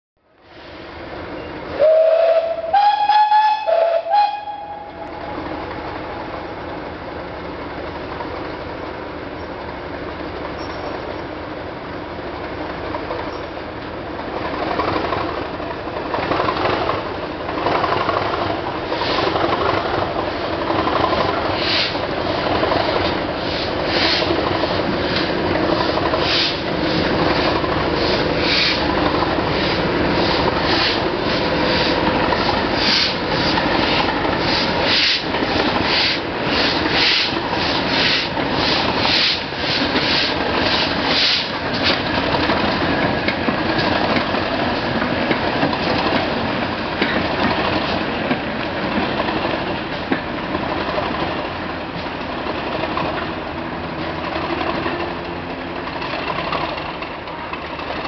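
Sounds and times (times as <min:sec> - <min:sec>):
diesel locomotive engine running: 0:00.2 - 0:58.0
two-tone locomotive horn: 0:01.7 - 0:05.4.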